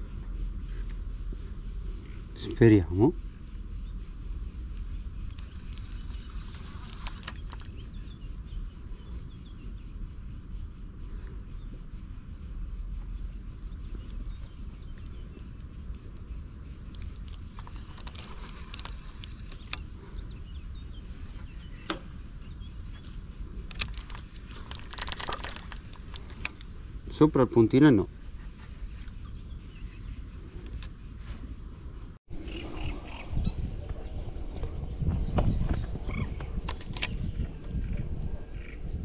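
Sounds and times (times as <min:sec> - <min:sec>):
crickets chirring: 0:00.0 - 0:39.0
fishing reel clicking and rattling: 0:17.0 - 0:19.9, 0:23.6 - 0:26.7.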